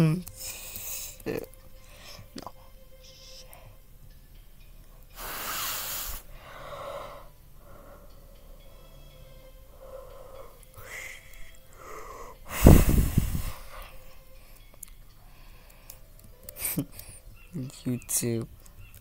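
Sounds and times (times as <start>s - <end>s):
person breathing hard: 5.1s - 8.8s, 9.7s - 14.2s.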